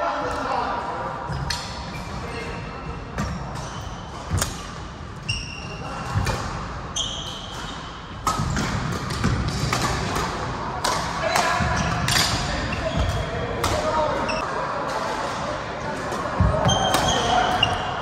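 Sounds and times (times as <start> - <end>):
shoes squeaking on floor: 1.3 - 6.0, 6.9 - 8.0, 11.7 - 14.4, 16.5 - 18.0
racket hitting shuttlecock: 7.3 - 13.9.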